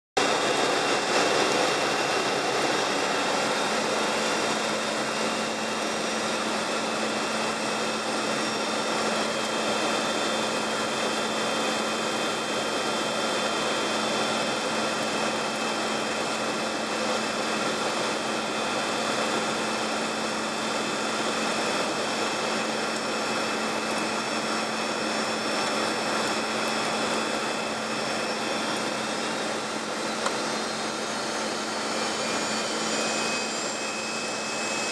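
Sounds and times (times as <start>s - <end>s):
engine and airflow rush: 0.2s - 34.9s
faint high whines: 0.2s - 34.9s.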